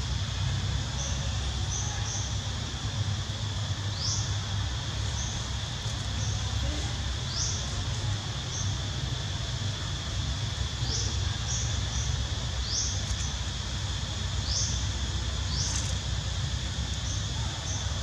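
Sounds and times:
high insect drone: 0.0 - 18.0.

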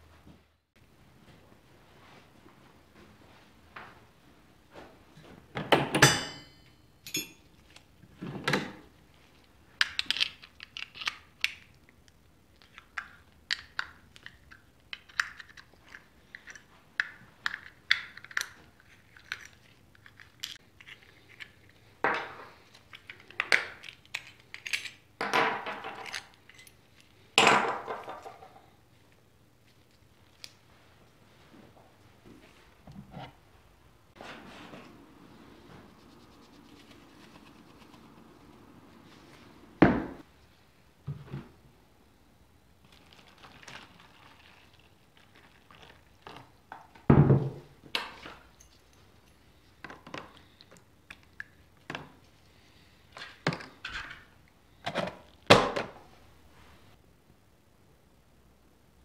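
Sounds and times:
metal clatter with ring: 6.0 - 7.5
metal clinks and scrapes: 6.1 - 7.5.

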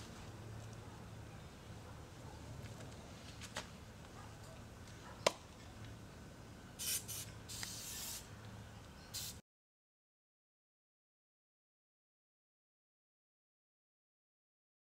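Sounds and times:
short hissing bursts: 6.8 - 8.3, 9.1 - 9.4.

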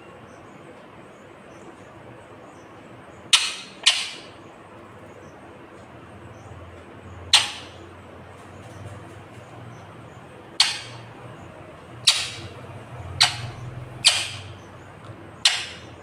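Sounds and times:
parakeet squawks: 3.3 - 4.4, 7.3 - 7.9, 10.5 - 11.2, 12.0 - 14.8, 15.4 - 16.0.

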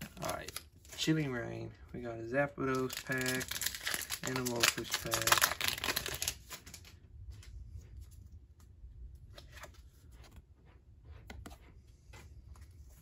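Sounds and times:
trading cards clicking and rustling: 0.0 - 1.1, 2.6 - 6.9
low steady hum: 0.0 - 13.0.

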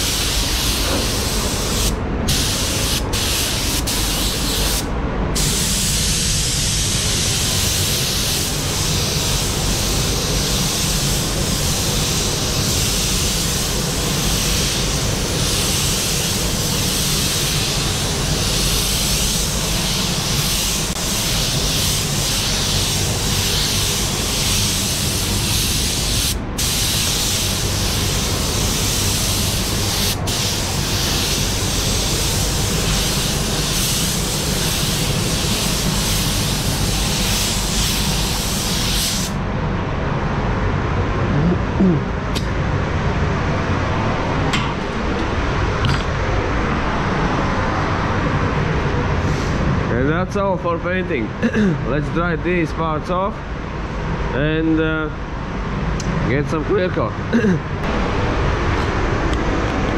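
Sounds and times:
paint spray gun hissing: 0.0 - 4.8, 5.4 - 39.4.

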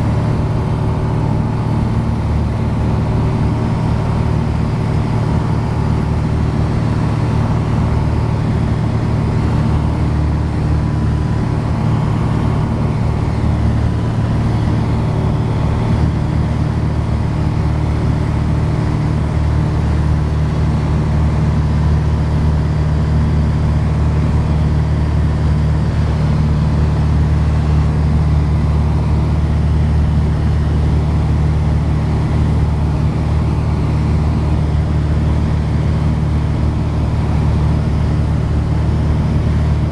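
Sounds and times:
aircraft engine drone: 0.0 - 39.9.

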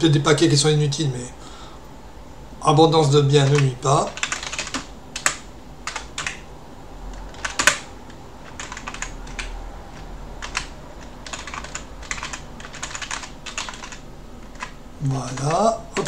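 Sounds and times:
typing on computer keyboard: 3.4 - 6.4, 7.1 - 16.0.

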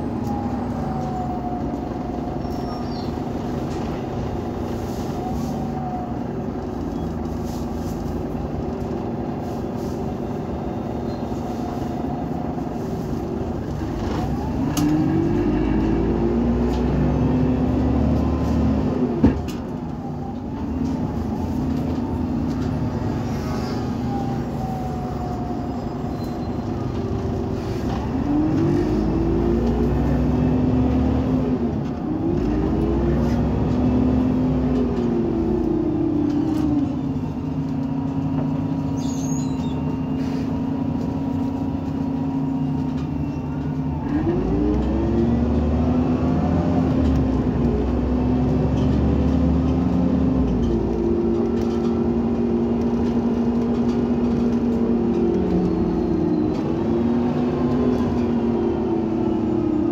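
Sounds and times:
bus engine revving: 0.0 - 59.9.

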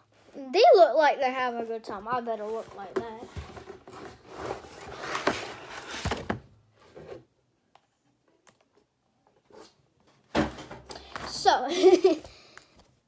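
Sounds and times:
cardboard and plastic packaging rustling: 1.8 - 7.2.

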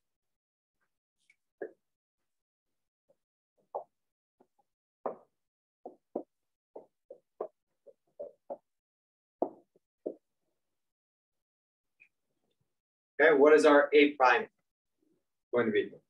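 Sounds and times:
marker tapping on whiteboard: 3.6 - 8.8, 9.4 - 10.3.

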